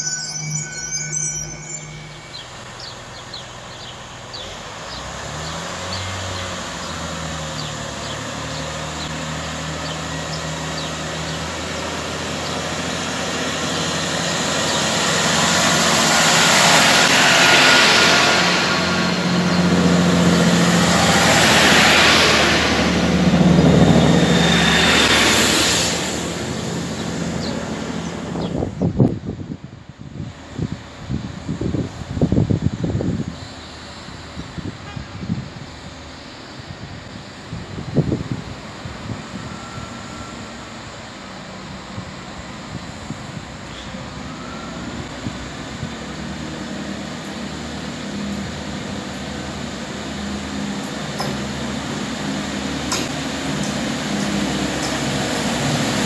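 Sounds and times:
carriages rushing past: 0.0 - 28.7, 44.3 - 56.0
train engines running: 0.0 - 56.0.

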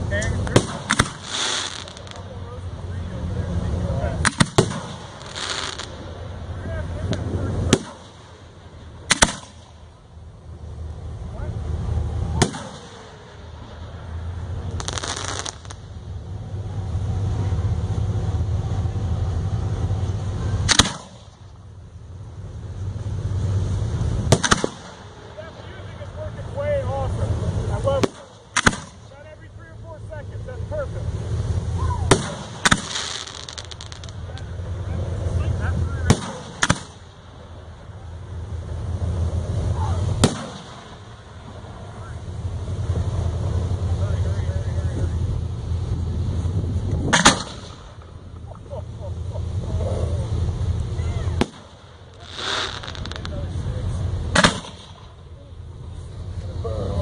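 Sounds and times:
firework hissing burst: 0.0 - 2.6, 4.2 - 10.0, 11.7 - 21.6, 22.6 - 26.6, 27.2 - 29.2, 30.0 - 44.3, 45.6 - 48.3, 49.2 - 55.2
low rumble: 0.0 - 57.0
firework launch bang: 0.3 - 2.6, 4.2 - 6.2, 7.0 - 9.9, 12.3 - 14.0, 14.6 - 16.0, 20.6 - 21.6, 24.2 - 26.3, 27.8 - 29.2, 31.8 - 34.5, 36.0 - 37.7, 40.1 - 41.6, 47.0 - 48.2, 51.1 - 53.6, 54.3 - 55.2.

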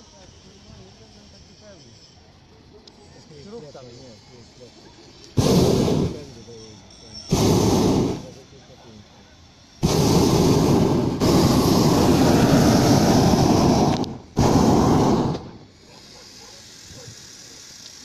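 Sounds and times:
propane burner firing: 5.3 - 6.4, 7.3 - 18.0.

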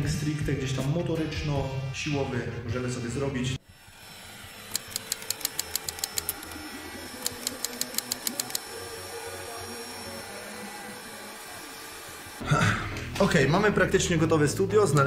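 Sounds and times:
typewriter clicks: 7.2 - 8.6.

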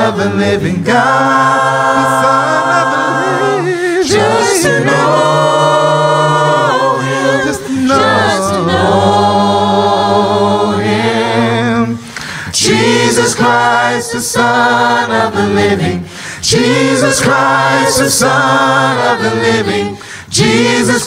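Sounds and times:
man singing unaccompanied: 7.6 - 9.5.

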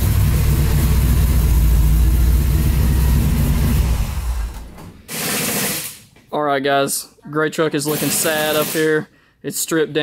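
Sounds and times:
pickup engine idling: 0.0 - 4.6.

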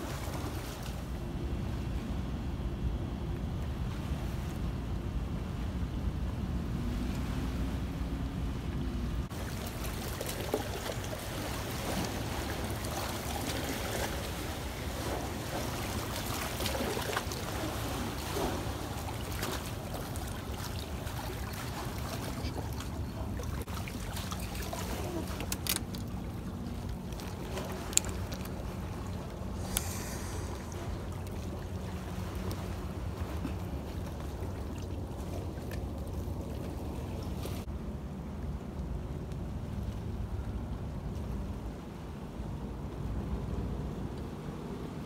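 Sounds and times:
water lapping on rocks: 9.3 - 37.7.

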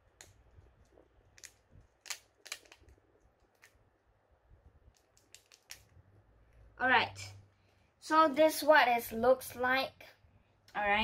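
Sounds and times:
plastic packet crinkling: 1.2 - 3.8, 4.9 - 6.0.

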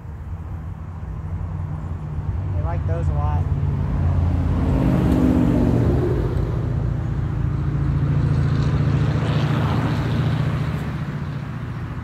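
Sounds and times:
engine droning: 0.0 - 12.0.

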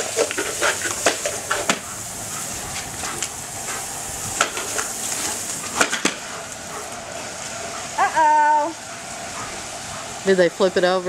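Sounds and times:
lawn sprinkler spraying water: 0.0 - 11.0
sprinkler clicks and splashes: 0.0 - 11.0.

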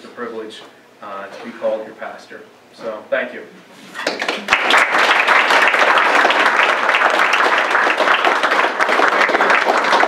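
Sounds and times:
audience applauding: 4.0 - 10.0.

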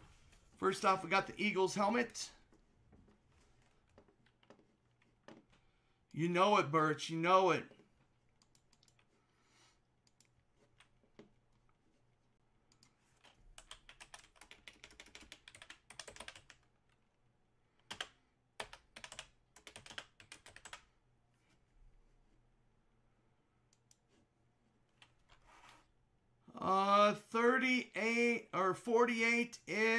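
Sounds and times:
computer keyboard typing: 8.4 - 9.1, 12.7 - 17.0, 17.8 - 20.9.

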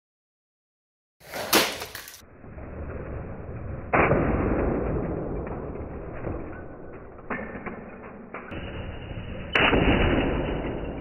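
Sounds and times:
loud toy car crash: 1.2 - 2.2.

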